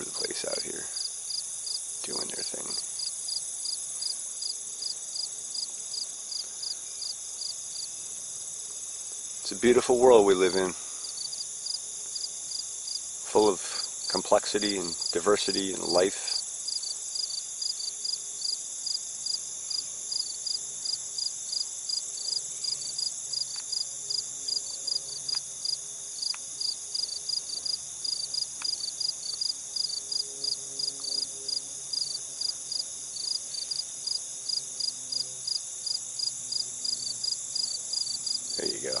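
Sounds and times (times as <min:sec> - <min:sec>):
crickets chirping: 0:00.0 - 0:39.0
high insect trill: 0:00.0 - 0:39.0.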